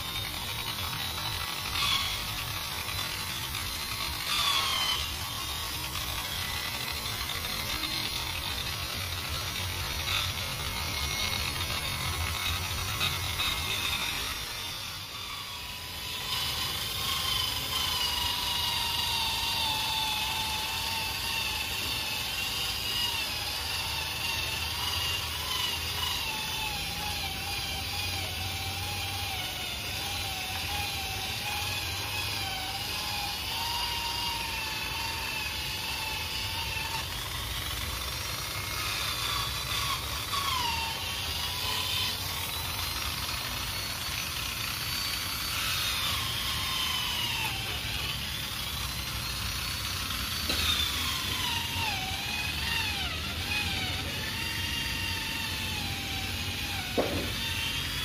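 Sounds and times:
electric polisher motor whine: 0.0 - 58.0.

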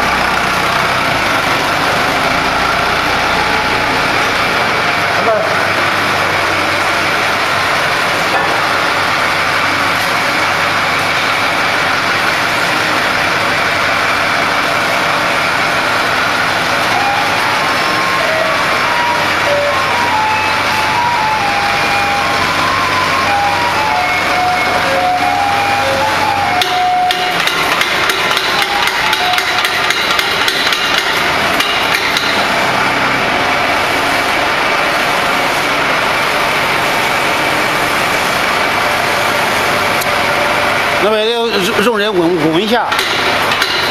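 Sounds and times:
factory machinery running: 0.0 - 43.9
rapid metal hammering: 26.5 - 32.6, 42.7 - 43.9.

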